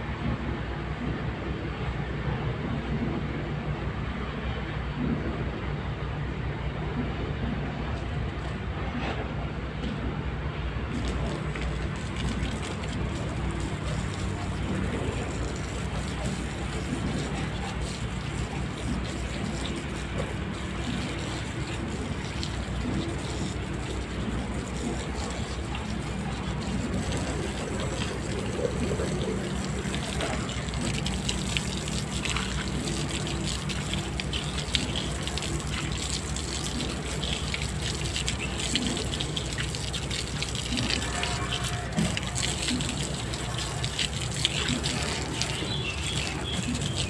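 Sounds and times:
hose spraying water on a car: 10.9 - 47.0.

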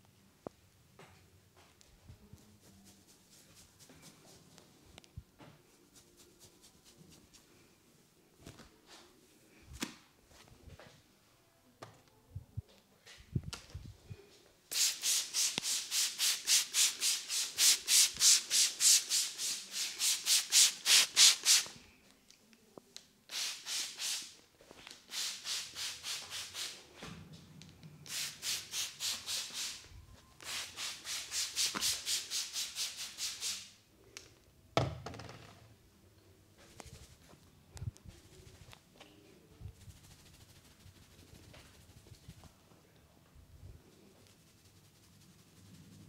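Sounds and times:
fingertips rubbing through hair: 2.3 - 4.6, 5.8 - 7.5, 36.6 - 38.9, 39.7 - 42.6, 44.2 - 46.0.

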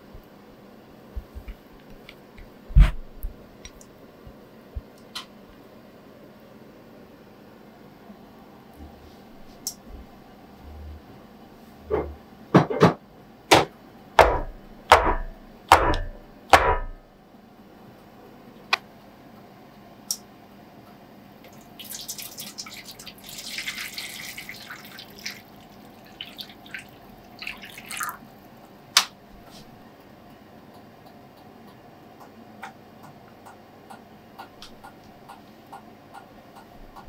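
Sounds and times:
sharp knocks with dull thuds: 11.9 - 17.0
water pouring into metal tray: 21.5 - 28.2.

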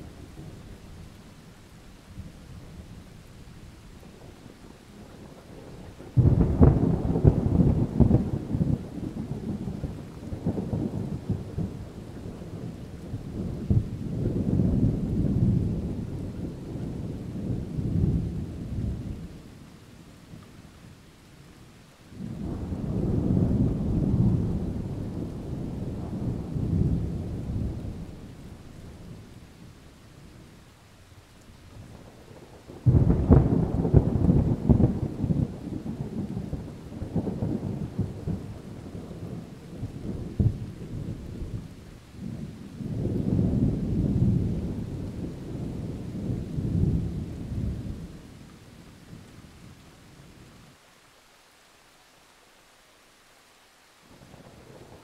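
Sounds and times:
distant thunder rumbling: 4.1 - 19.6, 22.1 - 30.5, 31.7 - 50.4.

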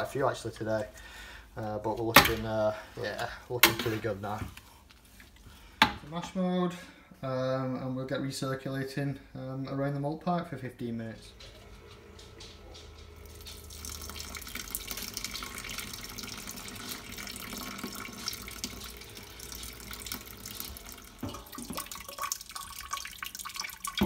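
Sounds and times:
wort bubbling in kettle: 13.2 - 24.0.

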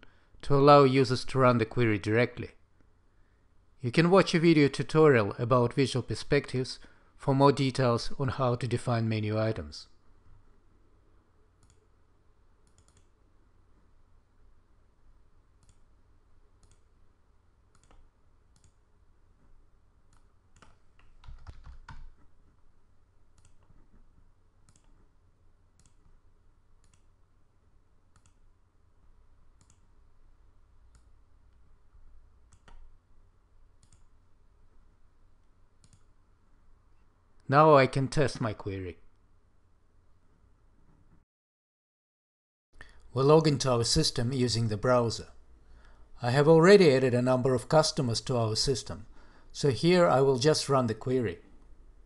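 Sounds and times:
computer mouse clicks: 11.6 - 11.9, 12.6 - 13.2, 15.6 - 15.9, 16.6 - 16.9, 17.7 - 18.8, 20.1 - 22.3, 23.3 - 24.0, 24.6 - 25.1, 25.8 - 26.2, 26.8 - 27.2, 28.1 - 28.5, 29.6 - 29.9, 30.9 - 31.7, 32.5 - 32.9, 33.8 - 34.1, 35.4 - 36.1
keyboard keystrokes: 20.1 - 22.2.

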